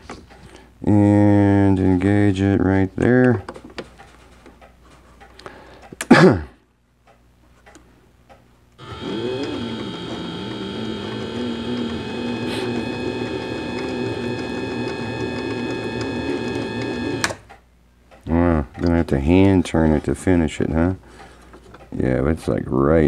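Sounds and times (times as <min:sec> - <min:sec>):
lathe motor whining: 0:08.8 - 0:17.4.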